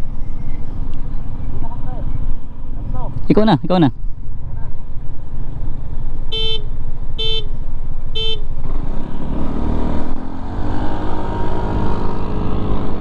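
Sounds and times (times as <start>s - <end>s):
scooter accelerating: 8.6s - 13.0s.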